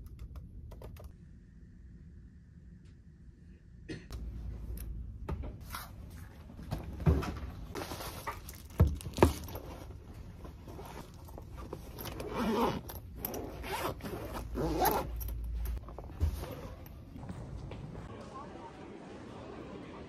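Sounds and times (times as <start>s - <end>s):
backpack zipper pulled: 12.0s - 15.2s.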